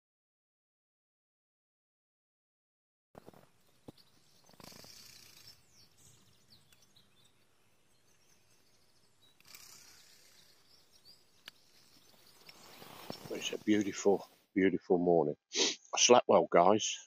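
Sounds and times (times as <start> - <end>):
faint bird chirps: 3.2 - 14.4
soft rustles: 11.7 - 14.5.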